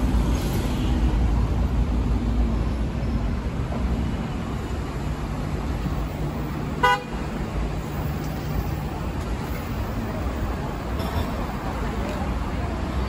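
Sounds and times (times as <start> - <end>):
road traffic rumble: 0.0 - 13.0
car horn toot: 6.8 - 7.2.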